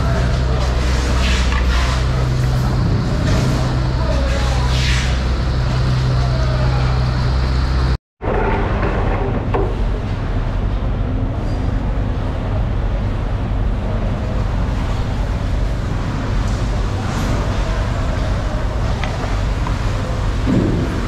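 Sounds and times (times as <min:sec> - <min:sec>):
market hall hum and rumble: 0:00.0 - 0:21.0.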